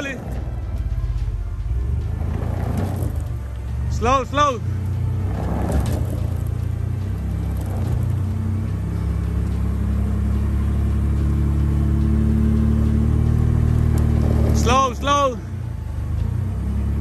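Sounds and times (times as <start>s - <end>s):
truck engine running: 0.0s - 17.0s.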